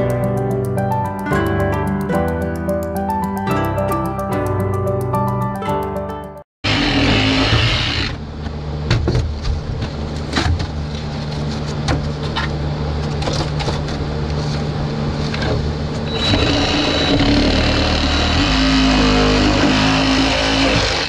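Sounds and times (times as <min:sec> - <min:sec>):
reciprocating saw cutting wood: 0:06.6 - 0:08.2, 0:16.1 - 0:21.0.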